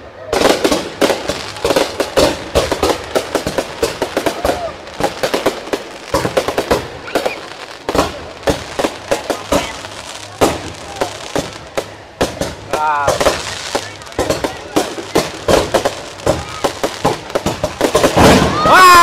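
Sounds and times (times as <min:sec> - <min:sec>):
fireworks popping and banging: 0:00.2 - 0:19.0.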